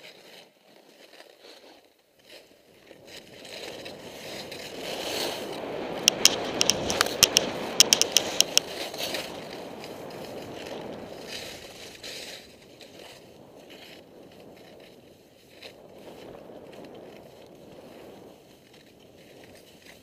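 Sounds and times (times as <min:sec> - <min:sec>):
skis scraping over snow: 0:00.0 - 0:20.0
sharp clicks: 0:06.0 - 0:08.7.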